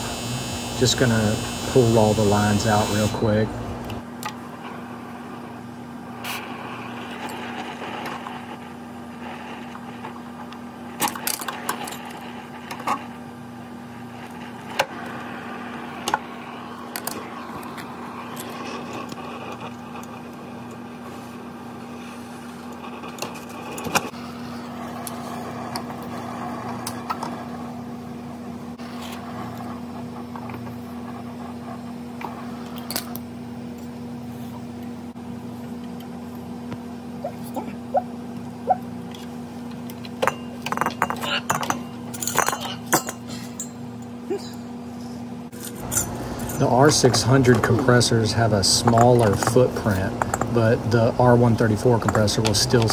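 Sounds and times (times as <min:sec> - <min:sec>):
torch flame hissing: 0:00.0 - 0:33.3, 0:45.8 - 0:52.9
low hum: 0:43.5 - 0:52.9.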